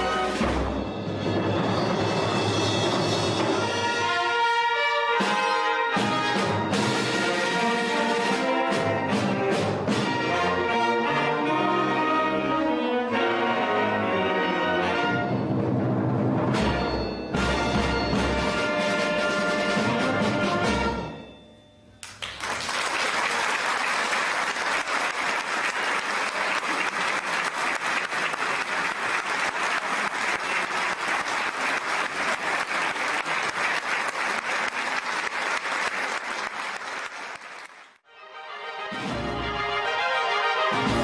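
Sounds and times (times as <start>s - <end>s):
applause: 22.0s - 38.1s.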